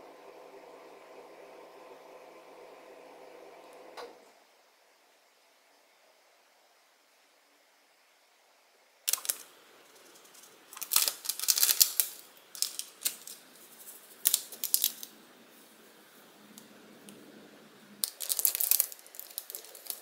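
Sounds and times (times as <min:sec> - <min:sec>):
plastic packet crinkling: 0:09.1 - 0:15.2, 0:18.0 - 0:20.0.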